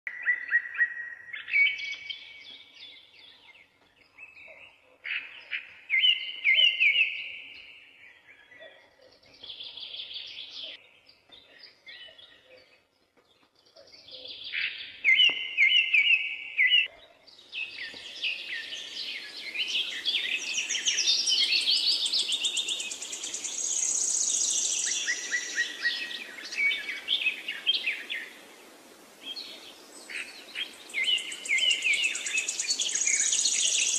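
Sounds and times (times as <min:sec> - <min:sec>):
birds chattering calls: 0:29.3 - 0:33.9.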